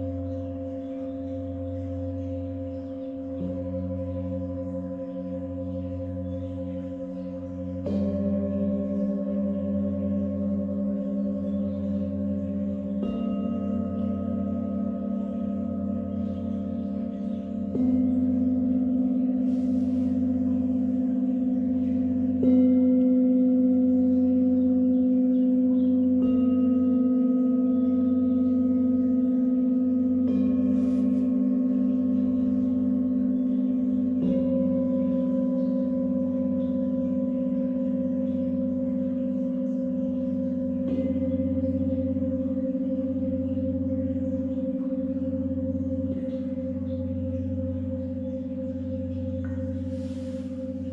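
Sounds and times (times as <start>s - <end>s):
singing bowls ringing: 0.0s - 50.9s.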